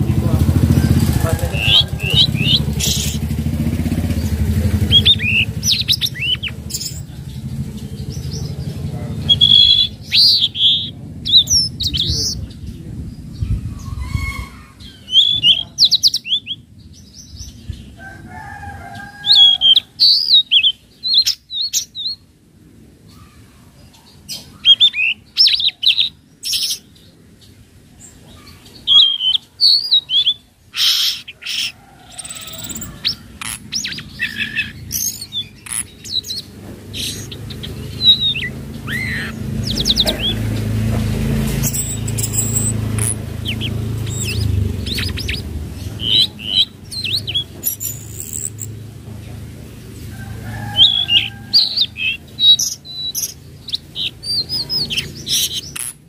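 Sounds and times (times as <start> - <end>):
sharp clicks: 34.9 - 36.4, 41.6 - 45.4.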